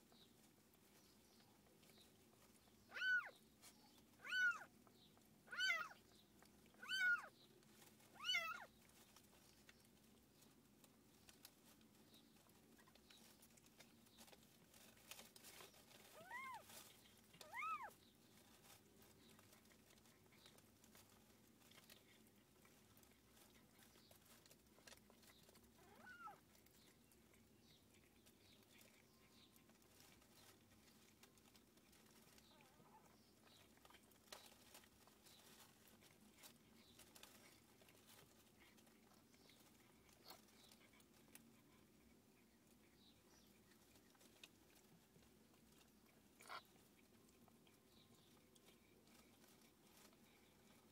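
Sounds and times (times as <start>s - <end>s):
faint ticks and rustles: 0.0s - 50.9s
cat mewing: 2.9s - 3.3s, 4.2s - 4.7s, 5.5s - 6.0s, 6.8s - 7.3s, 8.2s - 8.7s, 17.4s - 18.0s, 25.8s - 26.4s.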